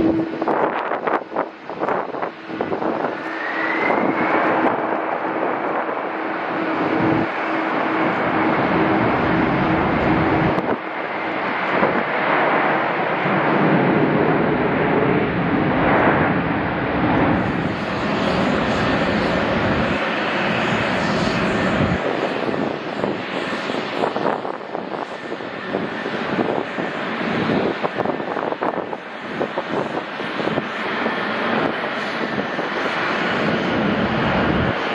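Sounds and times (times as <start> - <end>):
jet engines roaring: 0.0 - 34.9
rising engine whine: 0.0 - 34.9.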